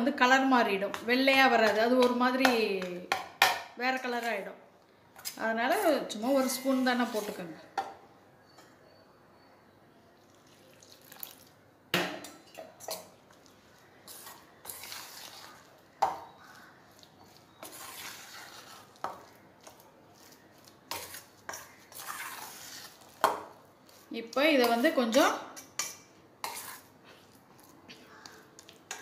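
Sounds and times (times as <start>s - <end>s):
dough scraping and rubbing: 5.7s - 7.6s, 16.4s - 24.8s, 26.4s - 29.0s.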